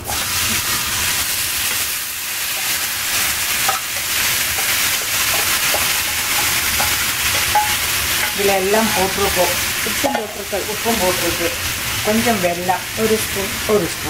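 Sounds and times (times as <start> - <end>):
oil sizzling in a frying pan: 0.0 - 14.0.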